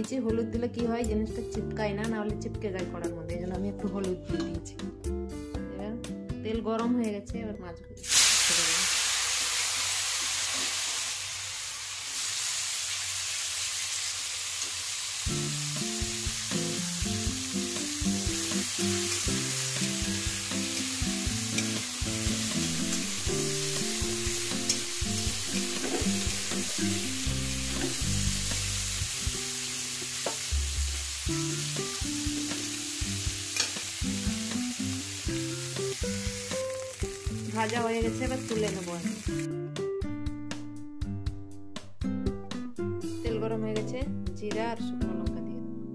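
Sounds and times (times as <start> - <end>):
fish sizzling in hot oil: 8.0 - 39.5
spatula scraping pan: 24.7 - 26.8.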